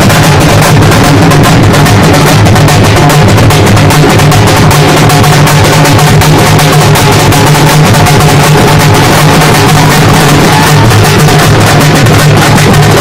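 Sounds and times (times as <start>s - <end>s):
frame drums beating fast: 0.0s - 13.0s.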